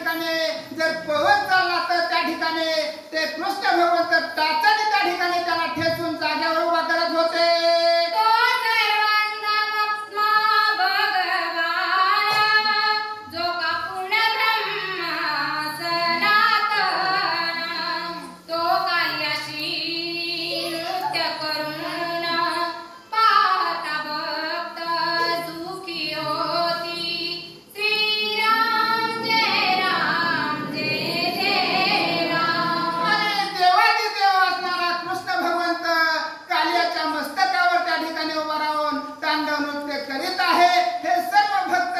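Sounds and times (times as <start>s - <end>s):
woman singing devotional verse: 2.7s - 35.5s.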